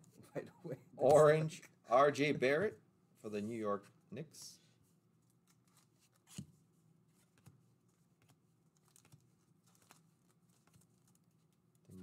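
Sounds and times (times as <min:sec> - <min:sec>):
trading cards flipped by hand: 0:05.4 - 0:06.6.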